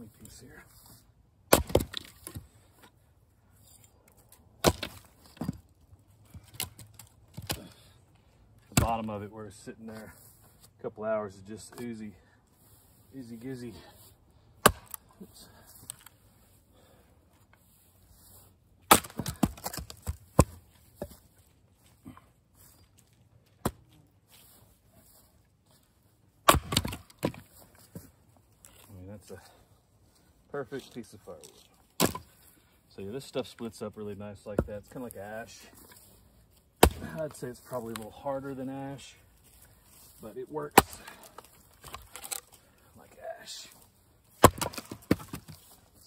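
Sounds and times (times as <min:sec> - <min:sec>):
axe splitting wood: 0:01.5 - 0:02.5, 0:04.6 - 0:05.7, 0:06.3 - 0:07.8, 0:08.7 - 0:09.1, 0:14.6 - 0:15.1, 0:18.8 - 0:21.1, 0:23.6 - 0:23.8, 0:26.4 - 0:27.5, 0:31.9 - 0:32.4, 0:36.8 - 0:38.0, 0:40.7 - 0:42.5, 0:44.4 - 0:45.6.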